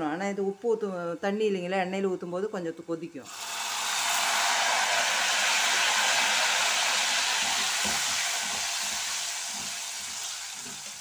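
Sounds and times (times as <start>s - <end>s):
frying oil sizzling: 3.3s - 11.0s.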